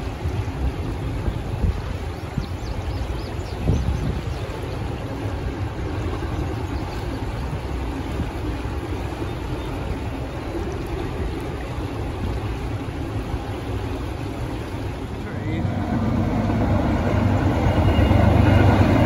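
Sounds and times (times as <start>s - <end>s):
creek running over rocks: 0.0s - 19.0s
freight train rumbling on rails: 0.0s - 19.0s.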